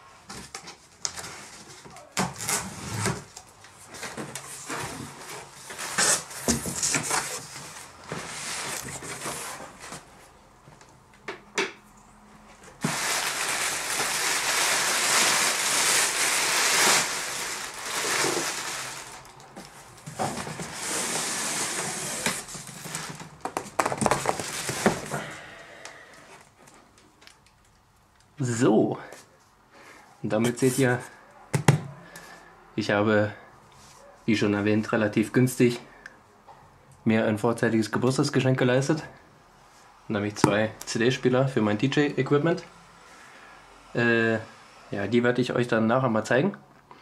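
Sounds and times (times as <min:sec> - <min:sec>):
plastic packing rustling and crinkling: 0:00.3 - 0:10.2, 0:12.6 - 0:25.4
cardboard scraping: 0:00.8 - 0:03.3, 0:03.9 - 0:10.1, 0:12.7 - 0:25.2.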